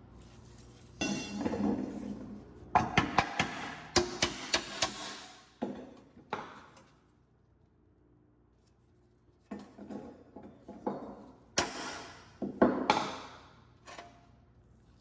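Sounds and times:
metal clanks with ring: 1.0 - 1.6.

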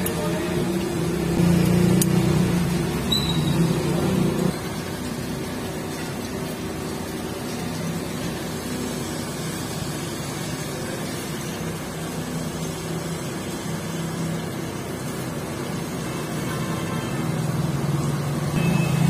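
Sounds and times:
faint high squeak: 3.1 - 3.6.

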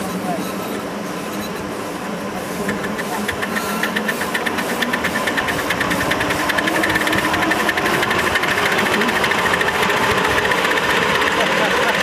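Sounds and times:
steam locomotive exhaust beats: 1.9 - 12.0.

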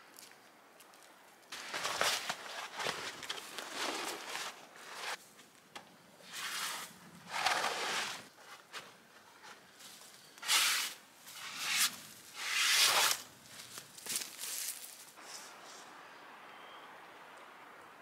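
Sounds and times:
canvas tarp rustling: 1.5 - 5.2.

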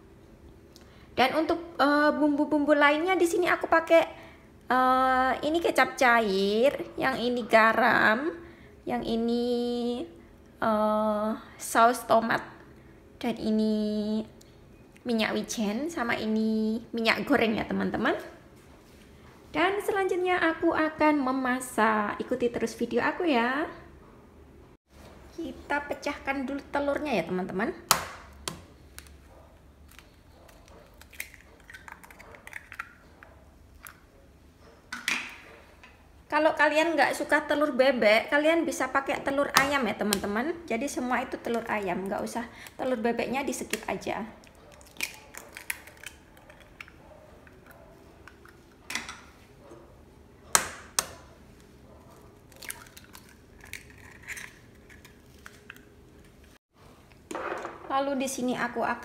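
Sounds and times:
eggshells cracking: 29.8 - 33.0, 43.7 - 47.6, 52.5 - 56.3.

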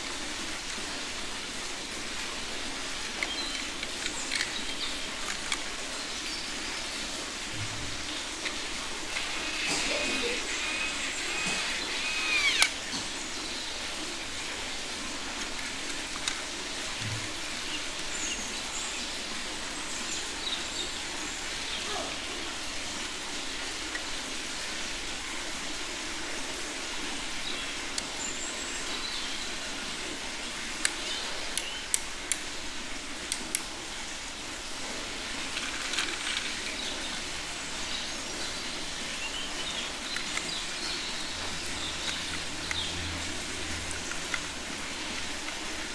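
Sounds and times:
steady outdoor hiss: 0.0 - 45.9
plastic toy parts clicking: 3.2 - 5.7, 8.4 - 12.8, 15.3 - 16.6, 33.3 - 33.7, 35.6 - 36.7, 40.2 - 40.6
faint bird chirps: 9.2 - 12.8.

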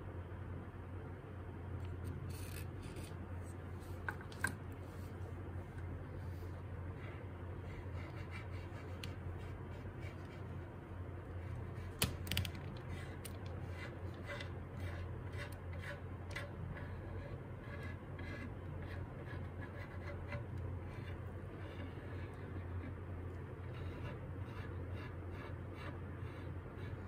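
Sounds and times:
steady low hum: 0.0 - 27.0
stick scratching and tapping: 7.0 - 10.6, 11.4 - 27.0.

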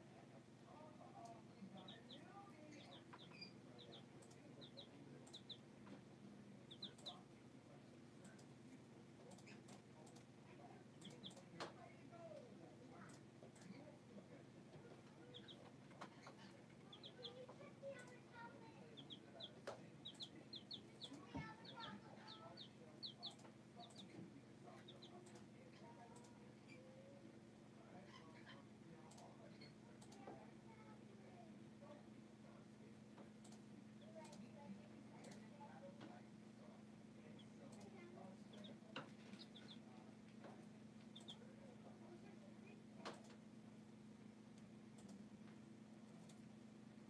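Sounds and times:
low steady hum: 0.0 - 47.0
chicks peeping: 1.6 - 11.7, 13.1 - 27.3, 37.2 - 43.4.

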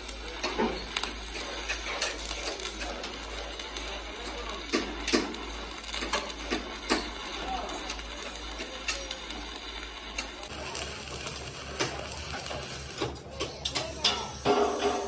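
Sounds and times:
welding arc crackling hiss: 0.0 - 15.0.

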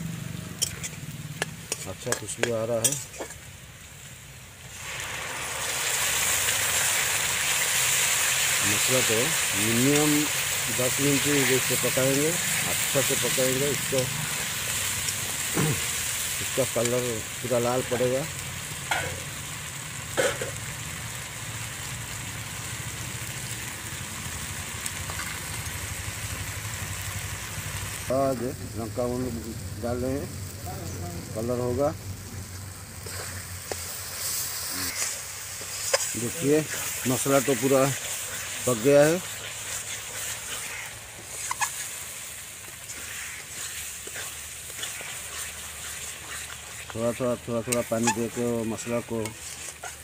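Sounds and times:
masala sizzling in oil: 0.0 - 50.0
metal spatula scraping paste: 42.9 - 50.0.

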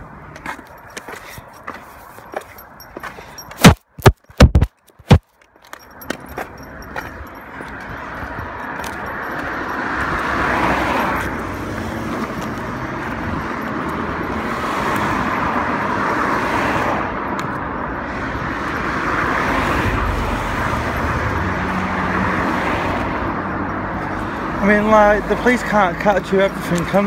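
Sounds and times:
cars passing on road: 0.0 - 27.0.

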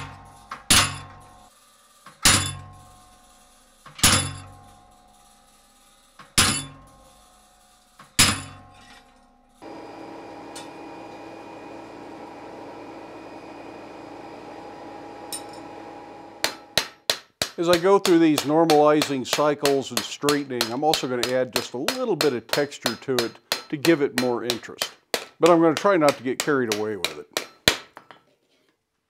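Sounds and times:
hammer striking chisel into steel: 0.0 - 1.2, 4.0 - 4.5, 8.2 - 8.7, 16.4 - 28.2.

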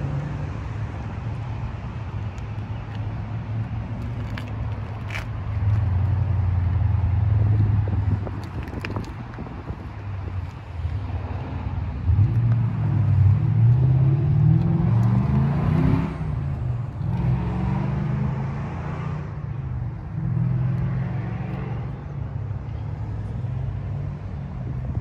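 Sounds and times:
vehicle engine accelerating: 11.0 - 25.0.

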